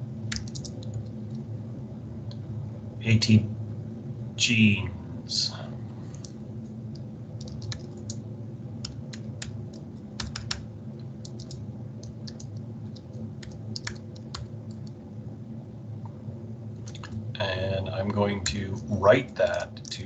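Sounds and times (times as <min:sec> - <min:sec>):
steady low hum: 0:00.0 - 0:20.0
typing on computer keyboard: 0:00.3 - 0:01.1, 0:06.9 - 0:08.2, 0:08.8 - 0:15.0.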